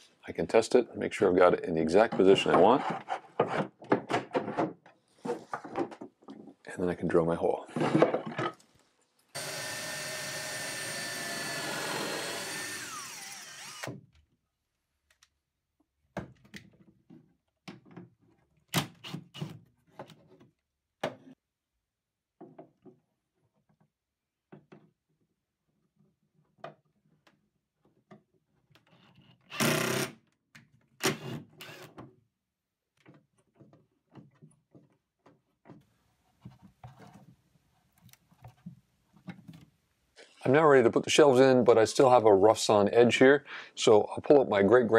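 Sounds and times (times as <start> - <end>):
power drill drilling into wood: 9.4 - 14.0, 29.5 - 30.1, 31.0 - 31.9.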